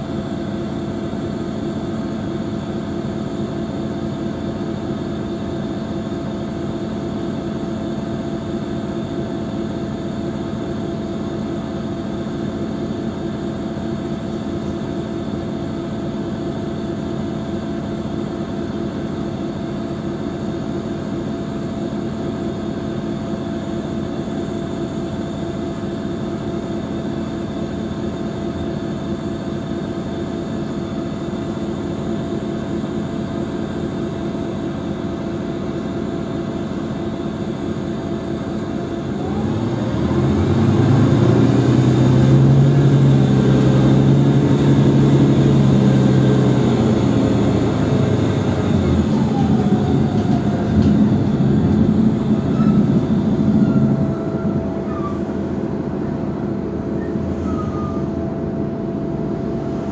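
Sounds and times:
diesel bus engine idling: 0.0 - 59.9
rising whine: 38.7 - 58.4.

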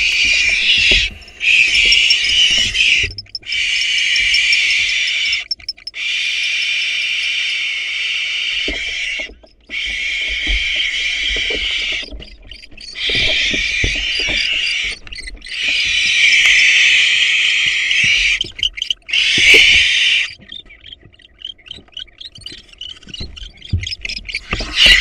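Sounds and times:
birds knocking in nest box: 0.0 - 6.0
owl clicks: 0.0 - 6.2
barn owls hissing: 0.0 - 9.1.

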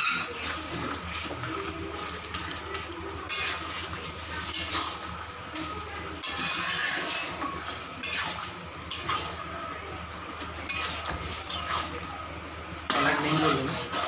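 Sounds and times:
metal spatula scraping wok: 0.0 - 5.2, 6.2 - 9.4, 10.5 - 12.0, 12.8 - 14.0
simmering sauce hissing: 0.1 - 14.0.

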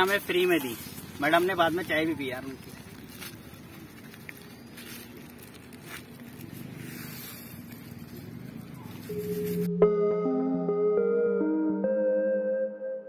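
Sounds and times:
music with held tones: 9.1 - 13.0.

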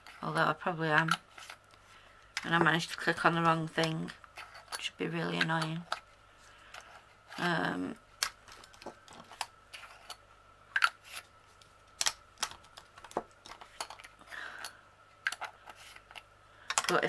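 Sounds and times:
plastic jars clicking together: 11.9 - 17.0.

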